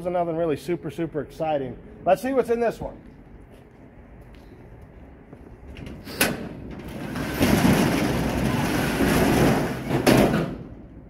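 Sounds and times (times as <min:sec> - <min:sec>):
roll-up metal door rattling: 0:05.7 - 0:11.0
metal door bang: 0:06.1 - 0:11.0.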